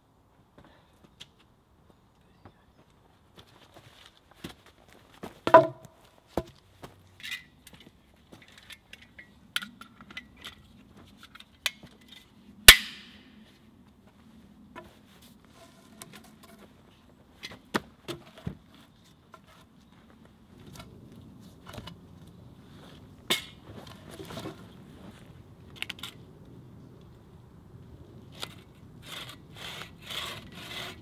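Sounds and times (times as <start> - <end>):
knocks and clicks of wood handling: 5.4 - 6.6.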